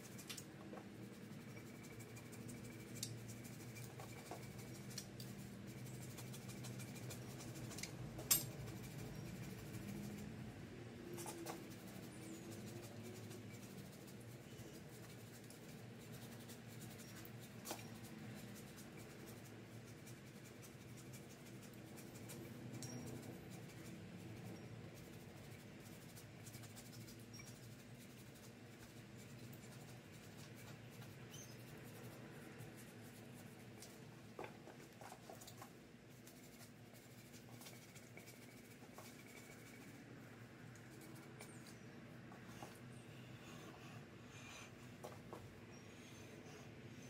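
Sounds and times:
low steady hum: 0.0 - 47.0
light clicks and scrapes: 11.0 - 43.8.

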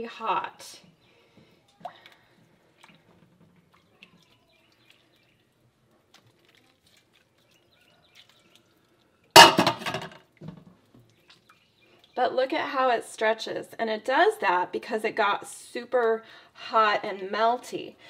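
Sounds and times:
water dripping: 0.8 - 12.8.

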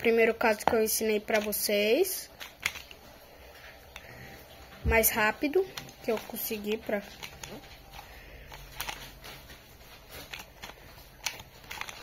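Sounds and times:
plastic puzzle clicking: 0.6 - 1.8, 2.4 - 3.0, 5.6 - 12.0.

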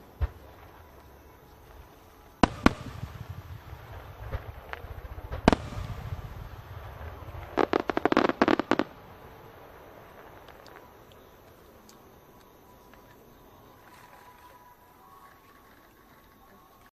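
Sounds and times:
fireworks bursting: 0.0 - 11.8
crackling firework bangs: 2.4 - 10.9.

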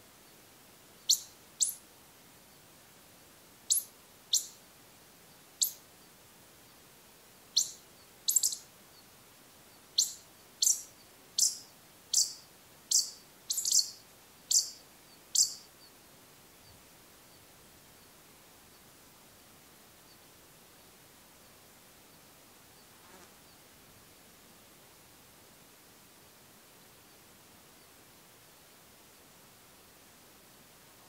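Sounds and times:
pika high-pitched calls: 1.0 - 1.8, 3.7 - 4.6, 5.6 - 5.9, 7.5 - 8.7, 9.9 - 15.9.

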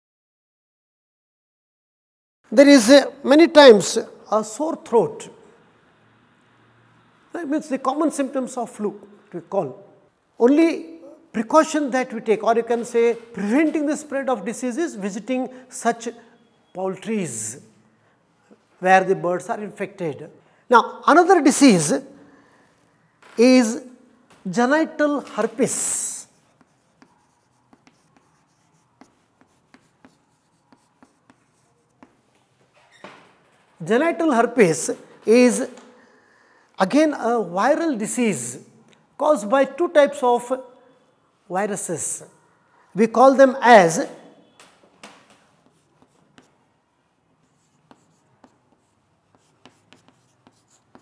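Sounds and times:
chalk tapping on chalkboard: 25.4 - 32.4, 45.0 - 46.6, 47.4 - 51.0.

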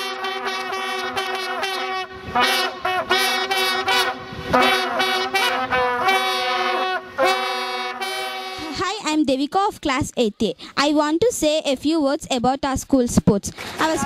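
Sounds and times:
brass horns blowing in unison: 0.0 - 8.8.

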